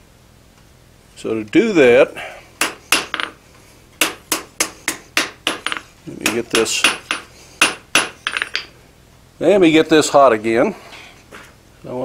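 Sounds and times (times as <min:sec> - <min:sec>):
hammer striking metal on anvil: 0:02.6 - 0:03.4, 0:04.0 - 0:08.7.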